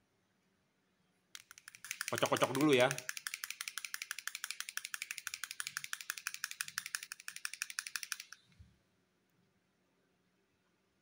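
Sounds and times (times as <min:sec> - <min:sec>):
paint pen ball rattling: 0:01.4 - 0:08.5.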